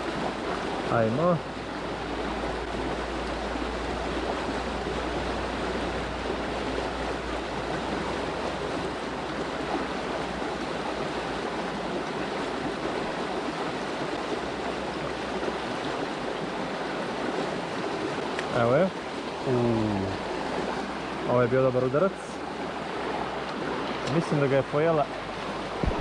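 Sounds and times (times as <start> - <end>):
river water running: 0.0 - 26.0.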